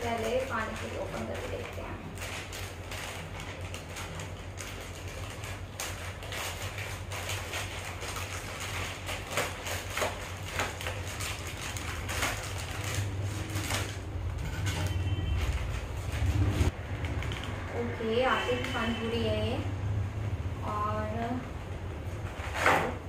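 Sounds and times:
foil pouch crinkling: 0.0 - 16.6.

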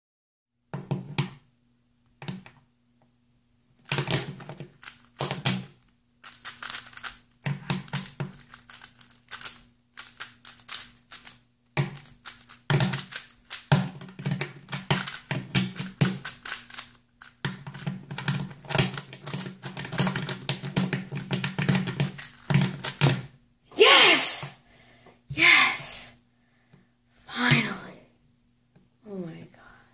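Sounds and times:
speedcube clicking layer turns: 3.9 - 5.6, 6.2 - 23.1.

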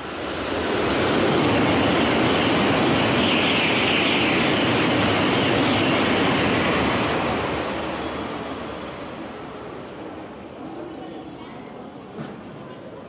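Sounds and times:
high-speed train passing: 0.0 - 13.0.

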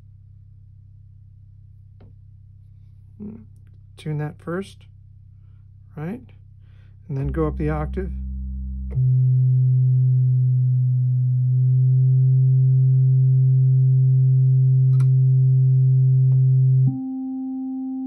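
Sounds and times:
low sine-like synth tone: 4.9 - 18.0
click: 14.9 - 15.2.

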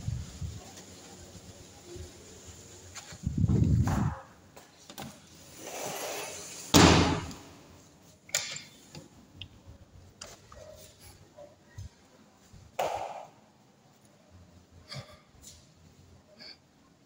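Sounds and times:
sliding glass door rolling: 5.2 - 7.4.

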